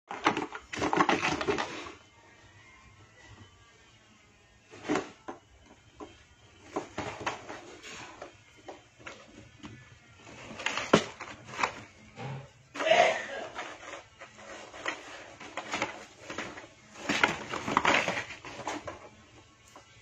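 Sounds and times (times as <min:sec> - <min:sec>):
cat scratching in cardboard box: 0:00.1 - 0:02.0, 0:13.5 - 0:19.2.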